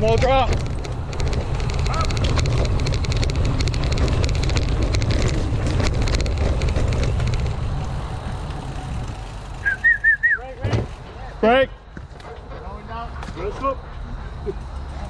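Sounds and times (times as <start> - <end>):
wind rumble on microphone: 0.0 - 9.6
bike rattling over rough trail: 0.0 - 15.0.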